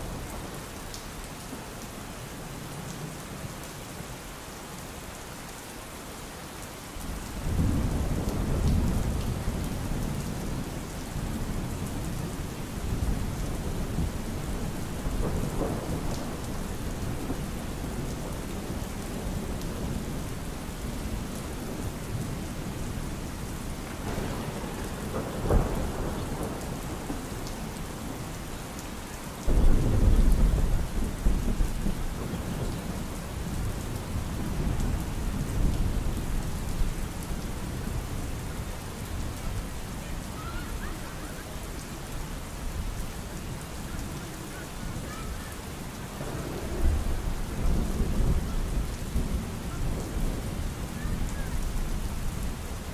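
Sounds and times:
steady rain: 0:00.0 - 0:52.9
rolling thunder: 0:07.0 - 0:23.1, 0:23.7 - 0:28.4, 0:29.4 - 0:38.3, 0:46.0 - 0:52.9
loud thunder clap: 0:23.9 - 0:27.2.

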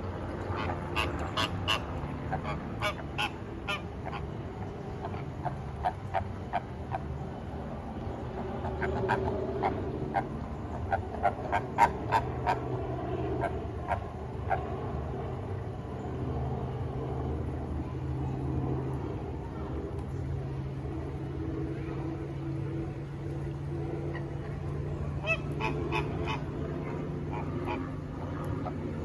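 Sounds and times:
steady low hum: 0:00.0 - 0:29.0
flamingos honking: 0:00.1 - 0:07.2, 0:08.4 - 0:14.8, 0:24.0 - 0:29.0.

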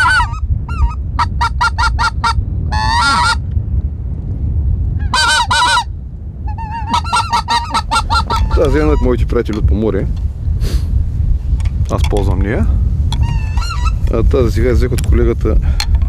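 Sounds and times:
goose call honks and clucks: 0:00.0 - 0:03.4, 0:05.0 - 0:09.2, 0:13.1 - 0:14.1
low wind rumble: 0:00.0 - 0:16.0.

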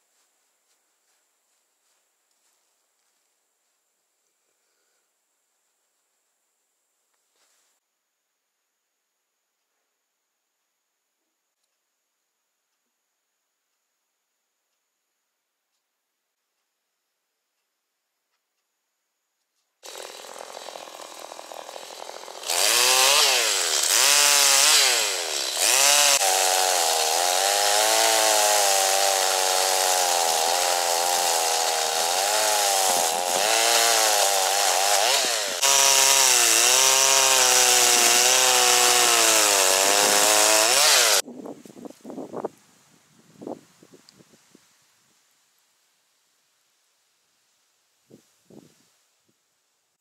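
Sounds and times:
chainsaw cutting through trunk: 0:19.8 - 0:41.2.

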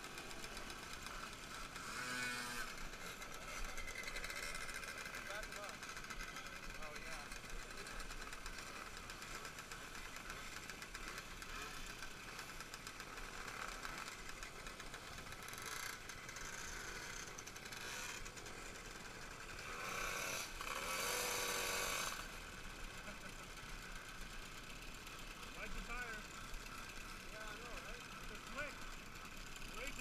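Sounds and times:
engine revving: 0:00.0 - 0:09.8, 0:10.4 - 0:23.4
moped engines idling: 0:00.0 - 0:30.0.

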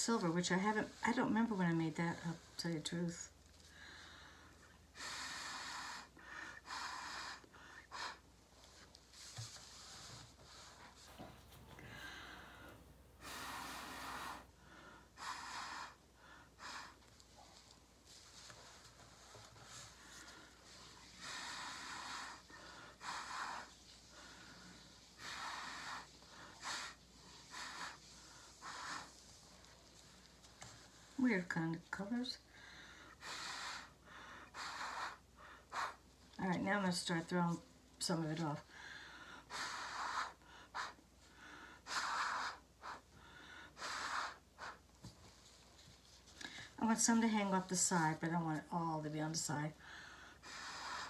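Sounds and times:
quick breaths: 0:09.6 - 0:31.2, 0:32.4 - 0:36.2
airy puffs through a straw: 0:16.6 - 0:31.4.

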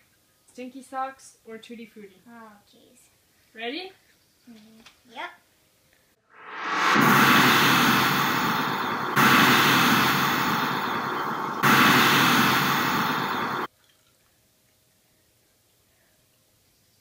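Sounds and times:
heavy whooshing hits: 0:06.4 - 0:13.7.

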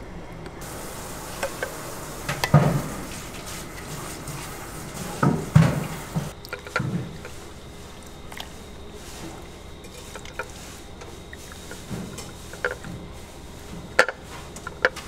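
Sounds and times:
metal utensils clinking on bowls: 0:05.3 - 0:08.5, 0:09.4 - 0:12.9.

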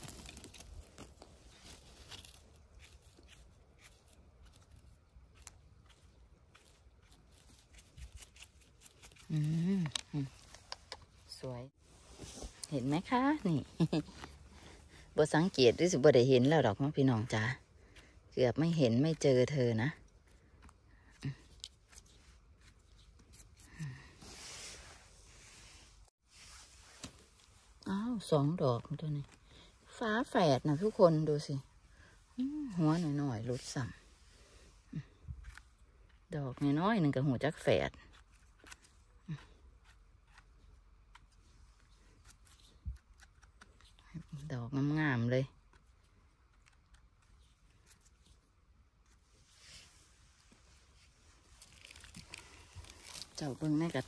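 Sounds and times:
faint crackling and rustling: 0:00.0 - 0:54.0
soft scraping hiss: 0:24.2 - 0:27.8, 0:49.1 - 0:53.4.

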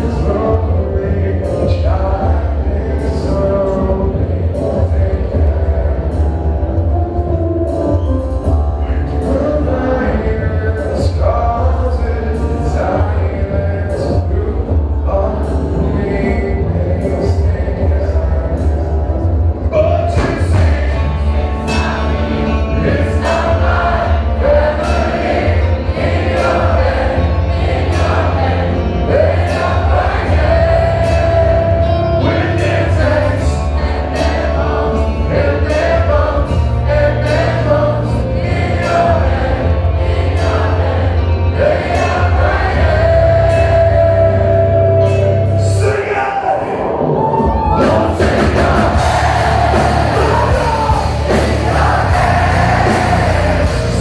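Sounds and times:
live rock band: 0:00.0 - 0:54.0
person singing: 0:00.0 - 0:54.0
heavy booming bass: 0:47.9 - 0:54.0.

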